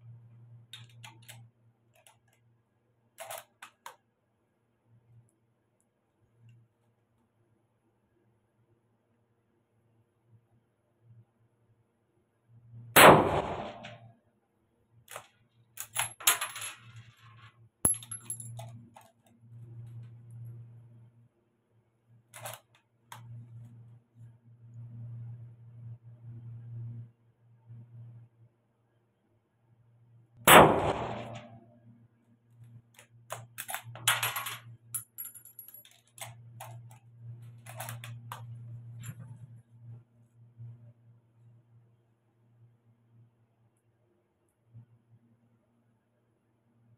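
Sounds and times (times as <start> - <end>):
rifle shot: 13.0 - 14.0, 30.4 - 31.6
metallic clicks and clinks: 15.1 - 17.3, 17.9 - 19.3, 33.3 - 37.0, 37.6 - 39.4.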